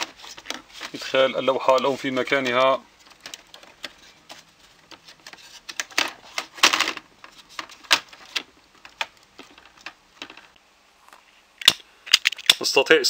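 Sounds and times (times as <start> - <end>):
plastic scraping: 0.0 - 10.6
plastic clicks and knocks: 1.8 - 10.6.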